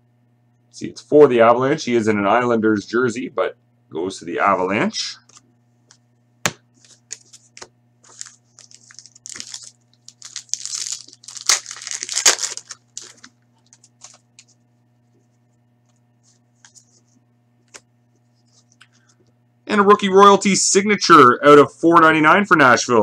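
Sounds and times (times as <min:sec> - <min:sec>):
faint steady hum: 0:00.0 - 0:23.0
card pack tearing and crinkling: 0:06.9 - 0:14.4.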